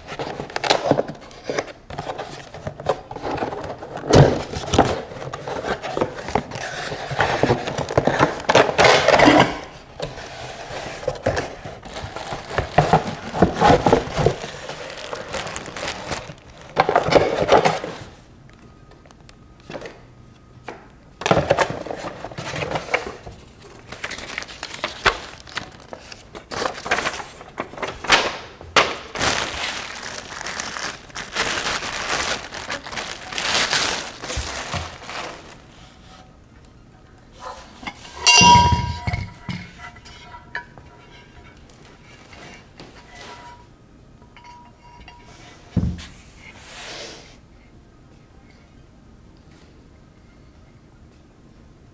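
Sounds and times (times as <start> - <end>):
cardboard scraping and folding: 0.0 - 18.2, 21.3 - 28.1, 29.2 - 36.3, 45.3 - 47.3
paper and plastic crinkling: 0.0 - 18.2, 21.2 - 36.2.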